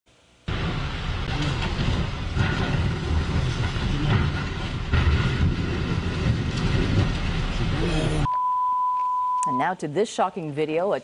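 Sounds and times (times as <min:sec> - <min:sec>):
debris knocking and scraping: 0:00.5 - 0:07.8
truck crashing onto vehicles: 0:00.5 - 0:08.1
steady low rumble: 0:00.5 - 0:08.3.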